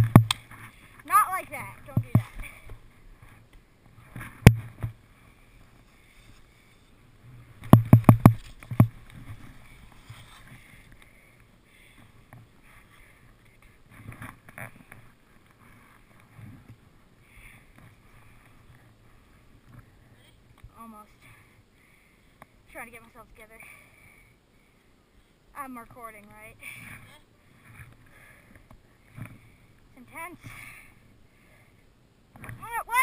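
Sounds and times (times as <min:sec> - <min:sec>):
skis scuffing in snow: 0:09.3 - 0:10.7.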